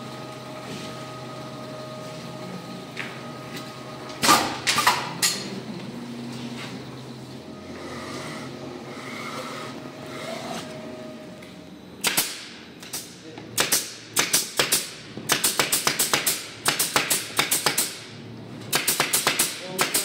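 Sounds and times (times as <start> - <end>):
pneumatic nailer shots: 4.2 - 5.4, 12.0 - 20.0.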